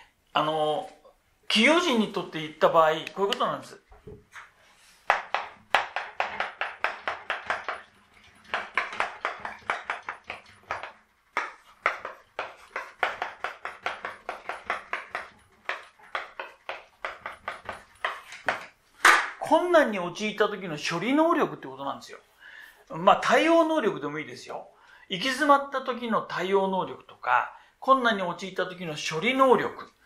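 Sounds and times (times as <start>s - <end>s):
chalk tapping and scratching: 5.0s - 18.7s.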